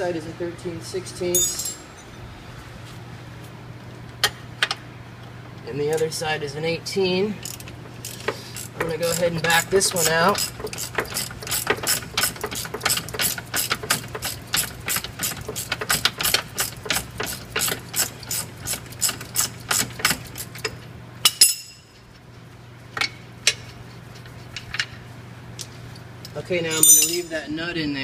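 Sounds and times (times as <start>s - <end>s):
metal clinks: 1.3s - 2.1s, 21.3s - 22.0s, 26.7s - 27.4s
hand ratchet clicking: 7.4s - 20.7s.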